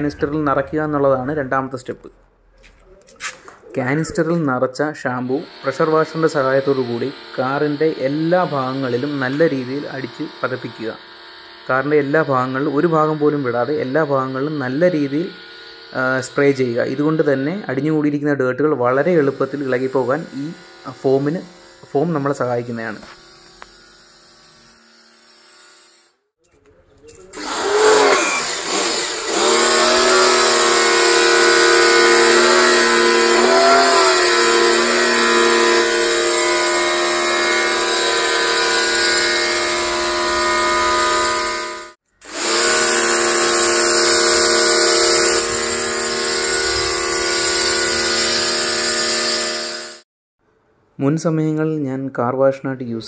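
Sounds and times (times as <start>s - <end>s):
pressure washer motor whine: 5.2s - 18.0s, 18.9s - 23.9s, 27.4s - 50.0s.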